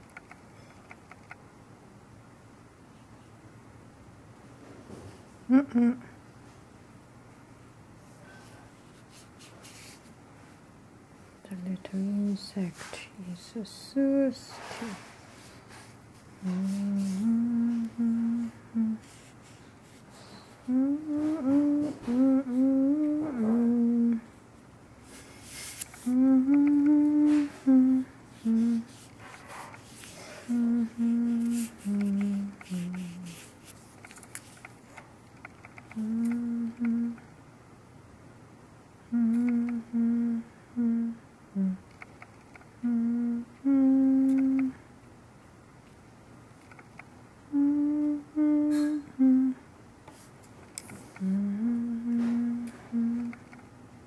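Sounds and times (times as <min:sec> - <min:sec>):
person humming: 0:05.5 - 0:06.2, 0:11.4 - 0:15.1, 0:16.4 - 0:24.4, 0:26.0 - 0:29.1, 0:29.8 - 0:33.6, 0:35.8 - 0:37.3, 0:39.1 - 0:42.0, 0:42.8 - 0:44.8, 0:47.5 - 0:49.7, 0:51.0 - 0:53.6
brush scrapes: 0:25.1 - 0:26.1, 0:28.3 - 0:30.6, 0:31.2 - 0:34.6.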